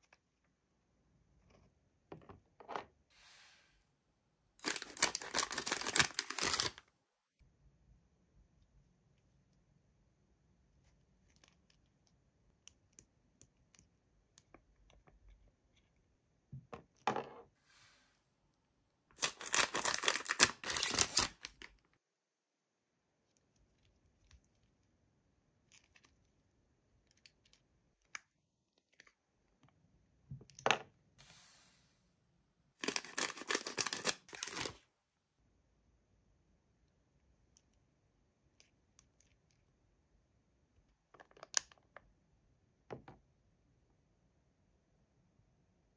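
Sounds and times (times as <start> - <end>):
packaging tearing: 4.6 - 6.8, 19.2 - 21.6, 32.8 - 34.8.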